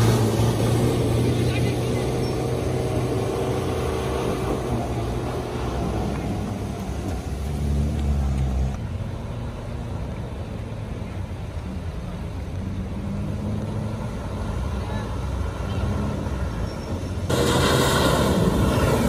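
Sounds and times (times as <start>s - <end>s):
rush of water spray: 17.3s - 19.0s.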